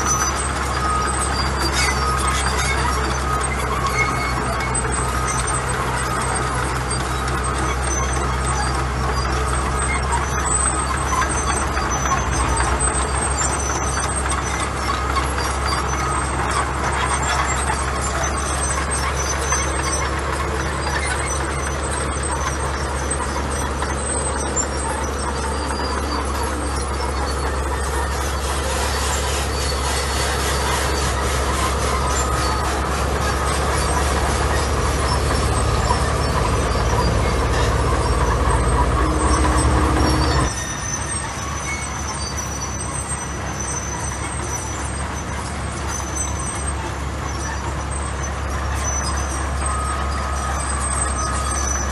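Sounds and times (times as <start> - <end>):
diesel engine drone: 0.0 - 51.9.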